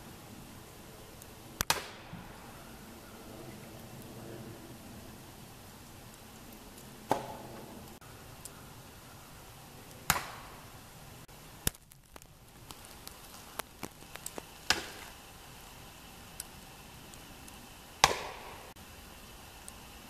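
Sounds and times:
axe chopping log: 7.1s - 7.6s, 14.7s - 15.1s, 18.0s - 18.6s.

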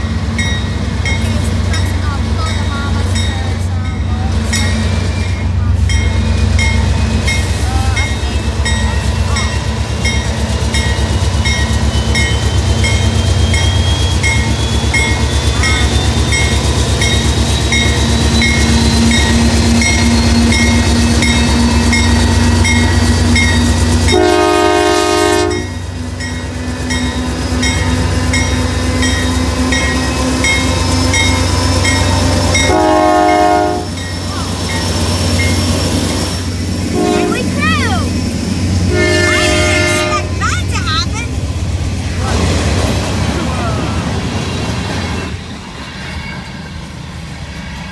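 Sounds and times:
locomotive horn blast: 24.1s - 25.8s, 32.2s - 34.0s, 36.9s - 37.9s, 38.8s - 40.4s.

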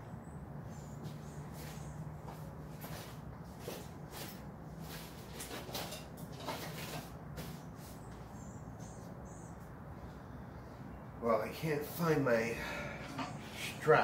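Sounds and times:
tools rustling and knocking on workbench: 1.1s - 7.8s.

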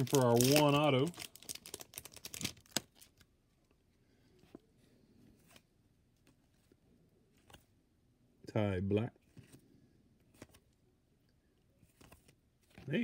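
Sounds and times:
cards rustling and clicking: 0.0s - 3.7s, 4.4s - 7.8s, 9.2s - 10.8s, 11.6s - 13.0s.

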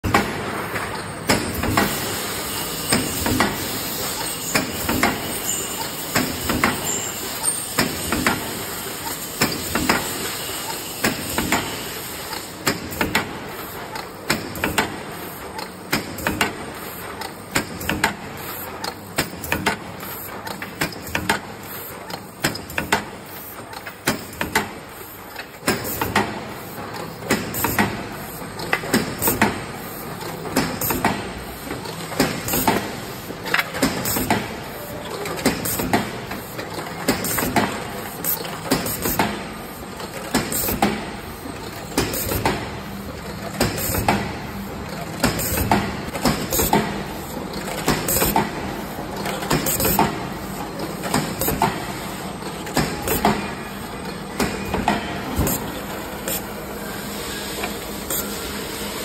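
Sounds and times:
continuous machine noise: 0.0s - 59.0s
hiss: 56.3s - 59.0s.

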